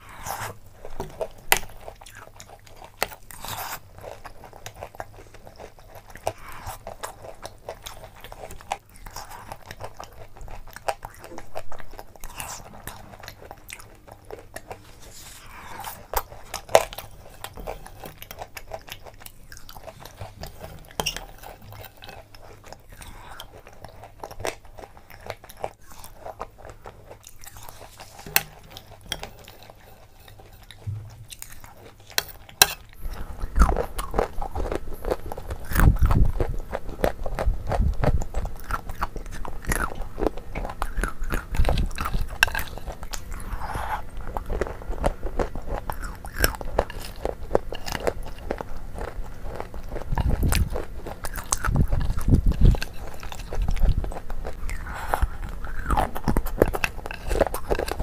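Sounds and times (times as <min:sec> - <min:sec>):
chewing and crunching: 0:00.0 - 0:58.0.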